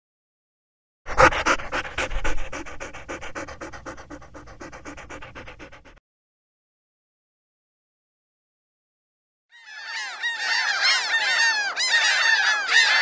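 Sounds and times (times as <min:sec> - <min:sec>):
dog panting: 0:01.1 - 0:06.0.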